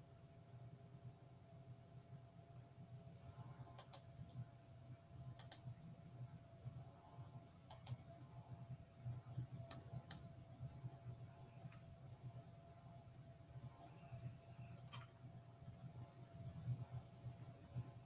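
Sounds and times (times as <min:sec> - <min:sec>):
faint room hum: 0:00.0 - 0:18.0
computer mouse clicks: 0:03.7 - 0:04.4, 0:05.4 - 0:05.7, 0:07.7 - 0:08.0, 0:09.6 - 0:10.3.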